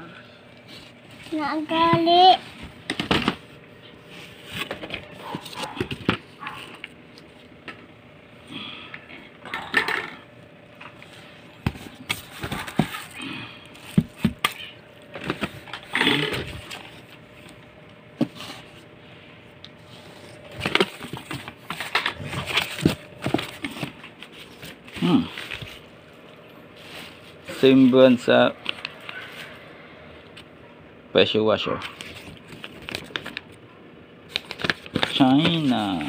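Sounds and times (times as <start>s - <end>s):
cardboard and plastic rustling: 0.6s - 7.8s, 10.8s - 17.6s, 19.8s - 29.6s, 31.8s - 33.6s, 34.3s - 36.0s.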